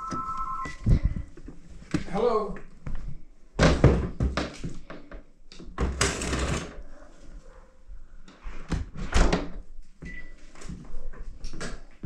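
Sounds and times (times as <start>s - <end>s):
short high beep: 0.0s - 0.9s.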